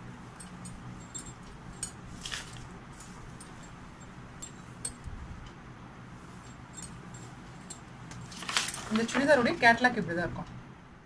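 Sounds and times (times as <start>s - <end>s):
steady low hum: 0.0s - 11.0s
cloth rustling: 0.3s - 5.0s, 6.2s - 9.6s.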